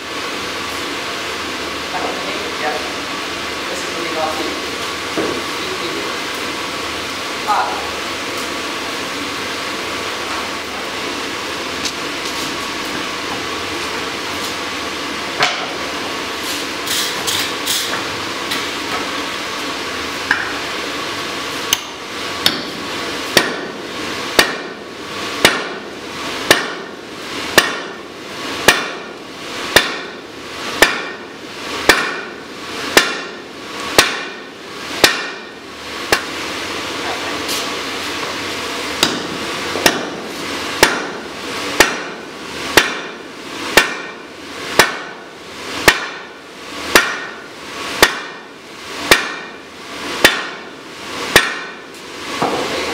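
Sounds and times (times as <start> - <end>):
forge blower rushing: 0.0 - 52.9
hammer striking hot metal: 20.3 - 20.6, 21.7 - 28.0, 28.6 - 36.3, 39.0 - 52.7.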